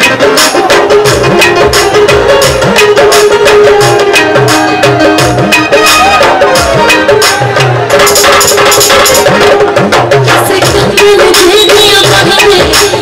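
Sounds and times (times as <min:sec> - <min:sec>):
electronic keyboard melody: 0:00.0 - 0:10.3
fast hand-drum rhythm: 0:00.0 - 0:13.0.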